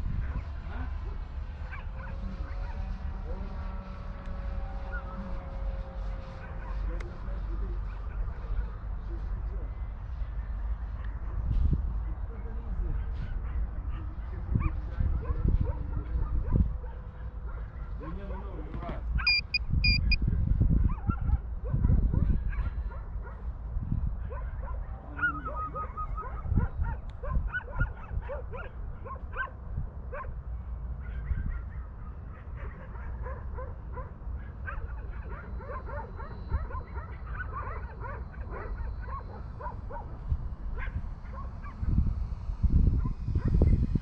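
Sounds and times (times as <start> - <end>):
wind rumbling on microphone: 0.0 - 44.0
dog whining and yipping: 19.3 - 20.2
short high beep: 19.3 - 20.2.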